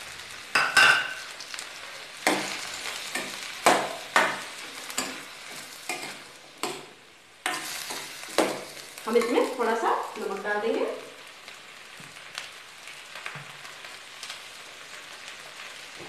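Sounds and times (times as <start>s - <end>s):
vegetables sizzling in a pan: 0.0s - 16.0s
spatula scraping and knocking pan: 2.2s - 9.3s.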